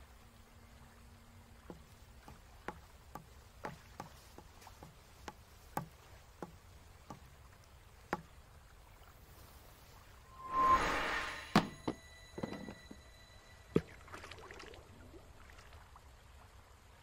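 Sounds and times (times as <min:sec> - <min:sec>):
faint clicking taps: 0:01.6 - 0:08.4.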